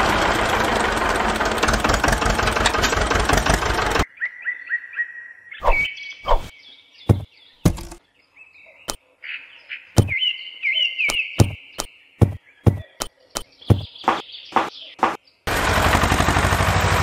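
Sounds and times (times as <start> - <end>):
high chirping calls: 4.1 - 15.2
sharp knocks or thuds: 7.1 - 8.0, 11.4 - 11.6, 12.2 - 13.0, 13.7 - 15.2.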